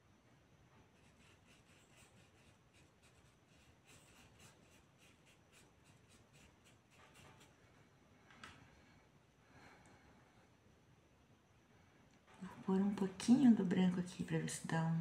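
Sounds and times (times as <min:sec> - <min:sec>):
paintbrush scratching on cloth: 0:01.0 - 0:07.6.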